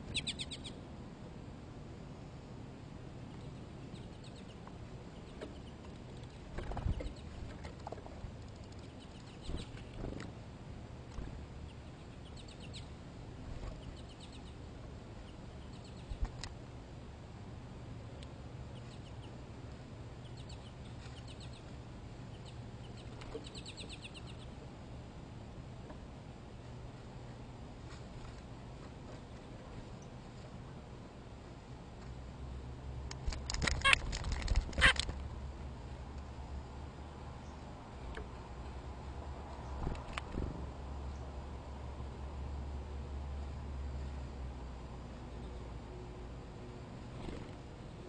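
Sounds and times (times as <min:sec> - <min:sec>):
small birds calling: 0:00.0 - 0:00.9, 0:03.2 - 0:07.4, 0:08.7 - 0:10.2, 0:11.2 - 0:13.0, 0:13.6 - 0:16.5, 0:20.1 - 0:24.7, 0:33.5 - 0:35.1
low steady hum: 0:00.0 - 0:48.0.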